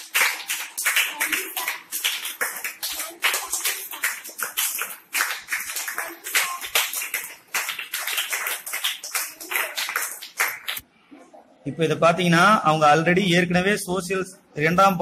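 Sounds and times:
children clapping: 0:00.0 - 0:10.8.

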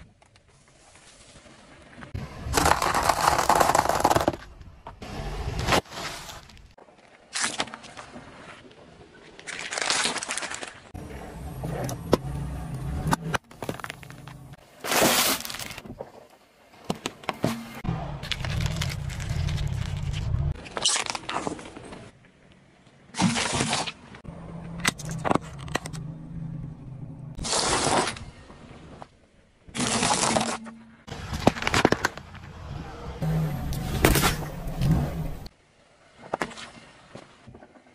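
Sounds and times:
tyre crunching plastic: 0:09.4 - 0:10.9, 0:13.4 - 0:16.2, 0:18.2 - 0:22.1, 0:29.7 - 0:32.5
low engine hum: 0:11.0 - 0:14.6, 0:32.2 - 0:35.5.

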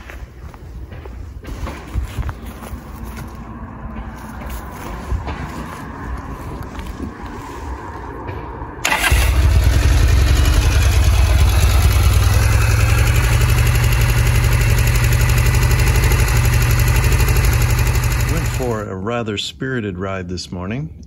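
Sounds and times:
electric starter spinning: 0:08.8 - 0:18.8
motorcycle engine running: 0:08.8 - 0:18.8.

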